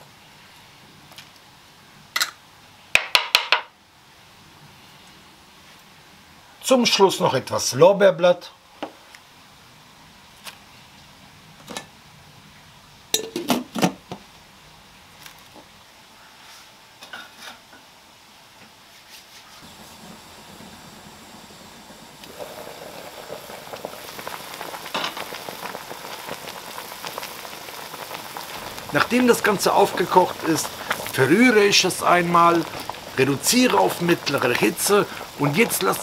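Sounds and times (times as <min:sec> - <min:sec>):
water boiling in pot: 0:19.6 - 0:36.0.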